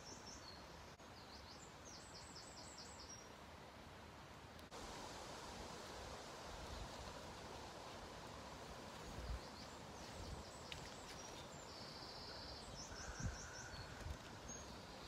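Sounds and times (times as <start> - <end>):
background hiss: 0.0 - 15.0
small birds chirping: 9.0 - 15.0.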